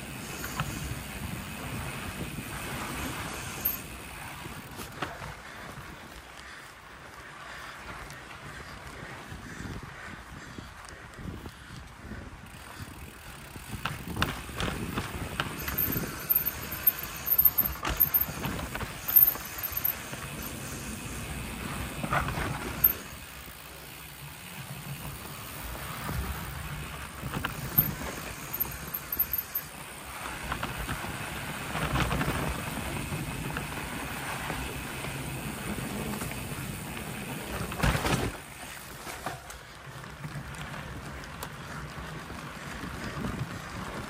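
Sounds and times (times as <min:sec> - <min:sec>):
bike rattles and knocks: 0:00.0 - 0:06.6, 0:12.4 - 0:44.0
tyres rolling rumble: 0:24.2 - 0:44.0.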